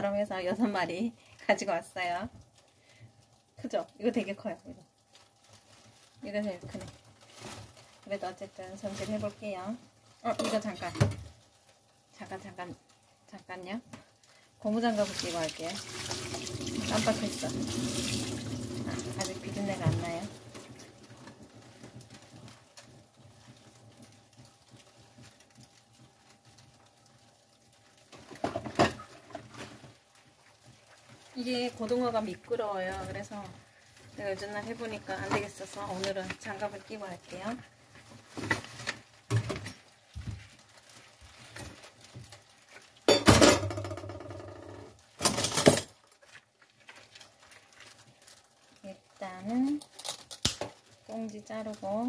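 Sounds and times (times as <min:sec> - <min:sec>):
rubber gloves rustling: 0:02.4 - 0:28.4, 0:29.0 - 0:43.1, 0:46.0 - 0:52.0
knock or clatter: 0:43.2 - 0:45.8.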